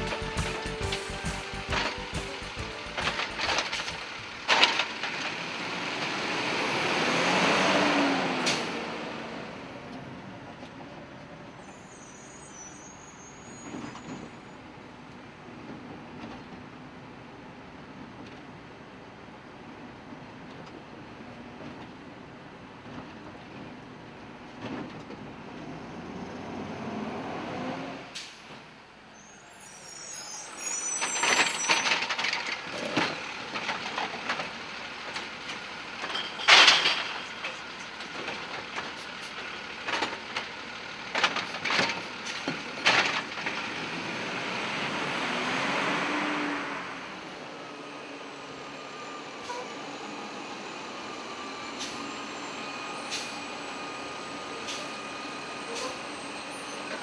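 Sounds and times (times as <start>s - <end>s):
truck diesel engine idling: 0.0s - 4.5s
clanks and knocks of trash cart: 0.0s - 5.2s, 31.2s - 39.1s, 41.1s - 43.6s
garbage truck engine running: 0.0s - 6.5s, 31.0s - 45.0s
brief sharp hisses: 53.0s - 53.5s.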